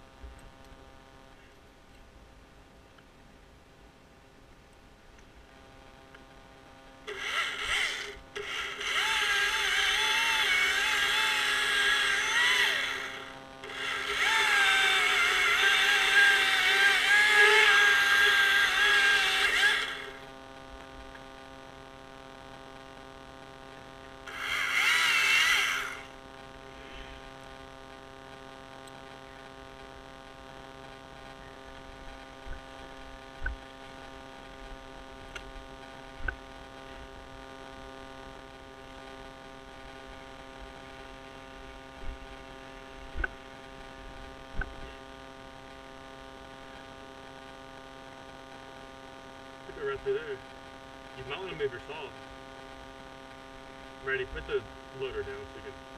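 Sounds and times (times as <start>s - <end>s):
chainsaw revving while cutting: 7.1s - 20.2s, 24.3s - 26.1s
chainsaw idling: 7.1s - 20.3s, 24.3s - 26.2s.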